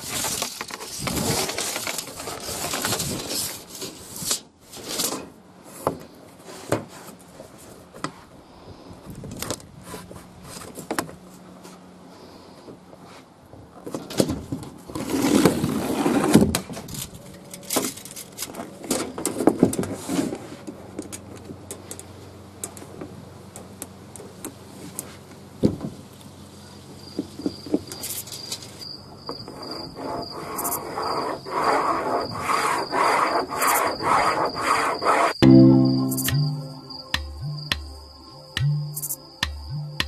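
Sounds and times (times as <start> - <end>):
high pulsing tone: 35.4 - 40.0.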